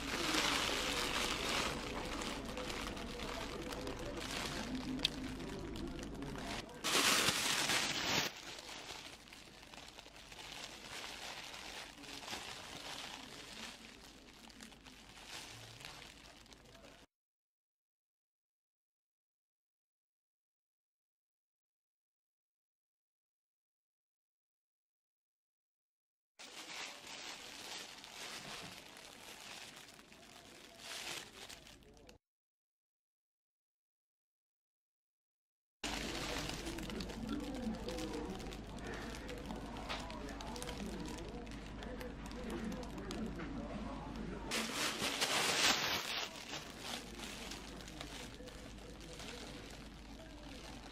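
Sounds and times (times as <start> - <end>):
plastic bag crinkling: 0.0 - 17.1, 26.4 - 32.2, 35.8 - 50.9.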